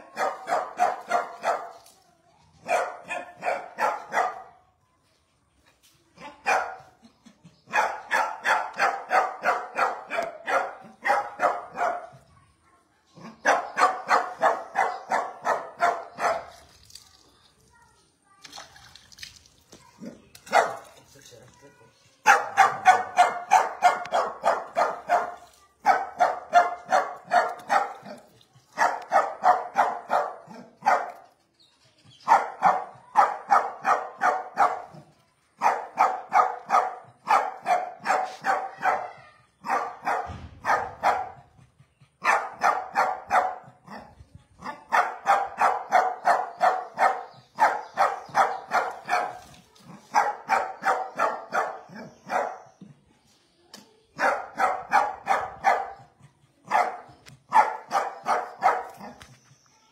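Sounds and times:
dog barking: 0.1s - 1.8s, 2.6s - 4.6s, 6.2s - 6.9s, 7.7s - 12.2s, 13.2s - 16.6s, 20.5s - 20.9s, 22.2s - 31.2s, 32.2s - 35.0s, 35.6s - 41.6s, 42.2s - 52.7s, 54.2s - 59.2s.

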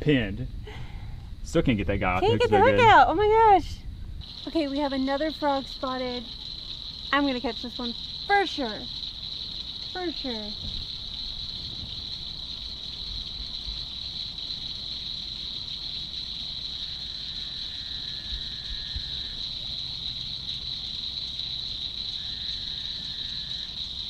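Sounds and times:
night insects chorus: 4.2s - 24.0s.

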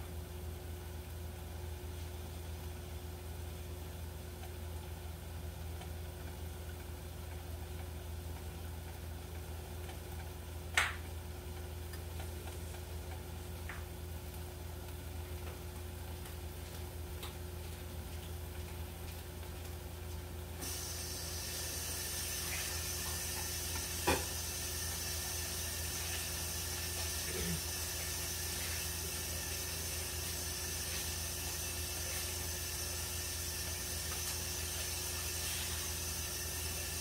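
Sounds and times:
food sizzling in covered pan: 18.9s - 37.0s.

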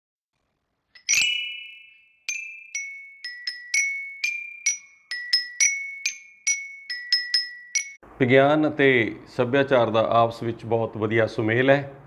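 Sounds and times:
bell-like jingle notes: 1.0s - 8.0s.

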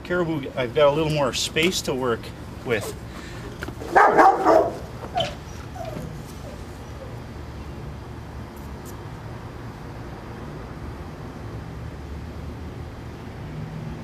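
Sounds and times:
steady background hum: 0.0s - 14.0s
animal barking: 3.8s - 6.6s
faint yelps: 3.8s - 7.2s.

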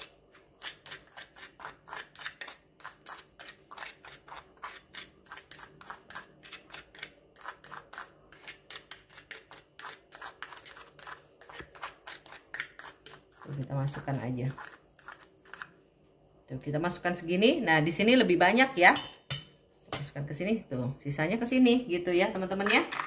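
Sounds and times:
spoon scraping bowl: 0.0s - 15.8s.

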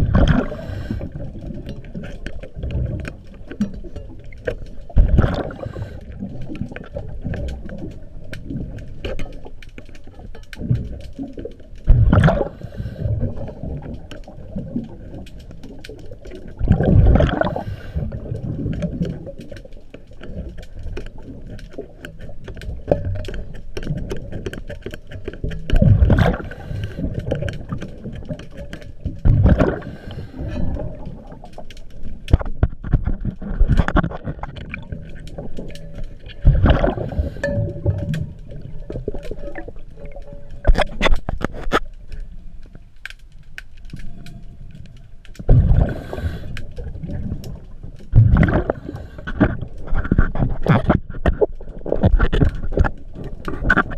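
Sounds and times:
exhaled bubbles rushing underwater: 0.0s - 9.0s, 10.6s - 19.6s, 25.7s - 32.3s, 33.1s - 41.1s, 45.4s - 49.6s
low underwater rumble: 0.0s - 9.6s, 10.2s - 19.8s, 20.4s - 53.9s.

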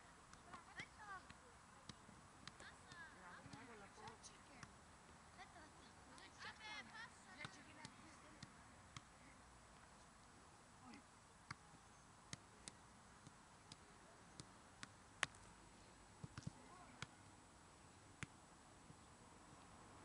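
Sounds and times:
faint outdoor hiss: 0.0s - 20.0s
football taps against foot: 0.3s - 4.7s, 7.4s - 9.1s, 16.2s - 17.1s.

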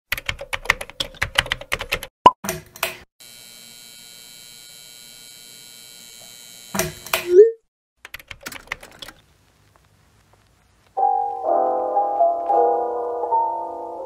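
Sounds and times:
keyboard typing clicks: 8.0s - 9.2s
faint electrical hum: 8.6s - 11.0s.

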